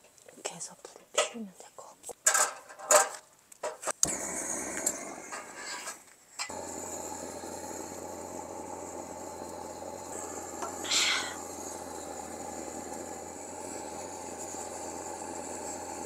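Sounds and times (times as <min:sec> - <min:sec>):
gas torch hissing: 0:04.0 - 0:16.0.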